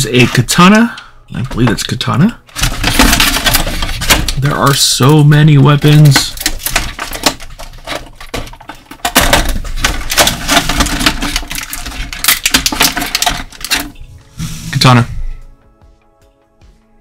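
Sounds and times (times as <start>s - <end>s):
plastic packaging clicks and crinkles: 2.5s - 14.0s.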